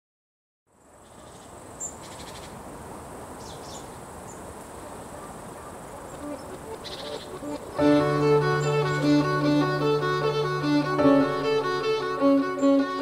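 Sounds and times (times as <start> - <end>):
steady outdoor hiss: 0.7 - 13.0
crickets chirping in trills: 0.8 - 7.8.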